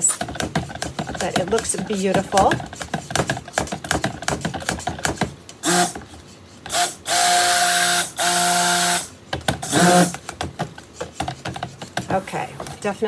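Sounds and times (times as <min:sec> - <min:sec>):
blender head knocking on pitcher: 0:00.0 - 0:06.1
stick blender whirring: 0:00.0 - 0:13.0.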